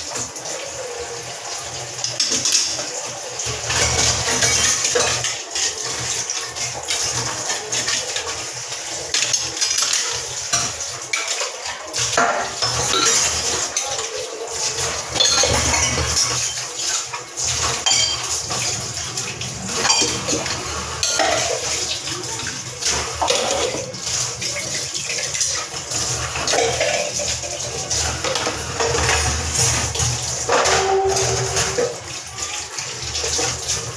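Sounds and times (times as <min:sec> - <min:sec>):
pots being scrubbed: 0:00.0 - 0:33.9
tap water running into sink: 0:00.0 - 0:33.9
metal dishes clinking: 0:09.1 - 0:14.1, 0:15.1 - 0:18.6, 0:19.8 - 0:21.8, 0:26.4 - 0:29.3.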